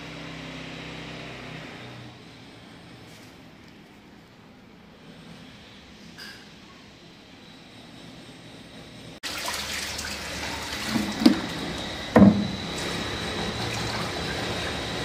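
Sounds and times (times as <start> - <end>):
water spraying and splashing: 9.2 - 15.0
knocks: 12.2 - 12.6.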